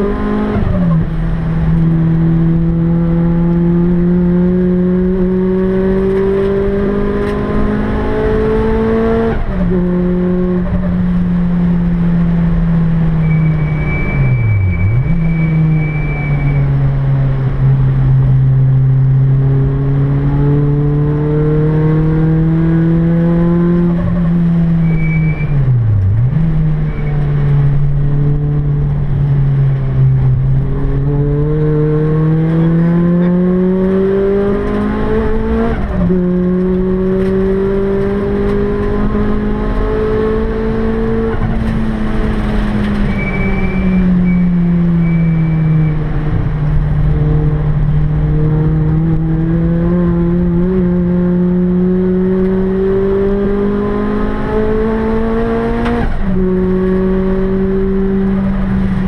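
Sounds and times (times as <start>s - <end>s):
car engine revving: 0.0s - 59.0s
faint high whistle: 13.2s - 16.7s, 43.1s - 46.0s.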